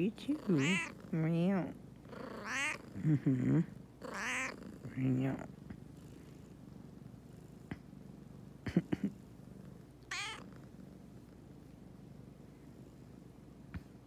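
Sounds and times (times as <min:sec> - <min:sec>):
cat purring: 0:00.0 - 0:14.0
cat meowing: 0:00.5 - 0:01.0, 0:02.4 - 0:02.9, 0:04.1 - 0:04.6, 0:10.1 - 0:10.5.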